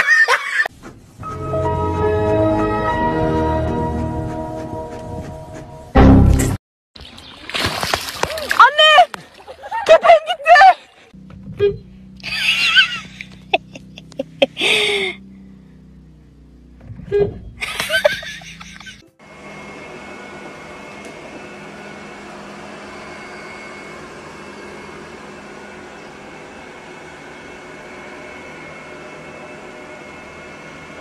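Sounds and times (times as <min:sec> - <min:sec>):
background music: 0:01.2 - 0:06.6.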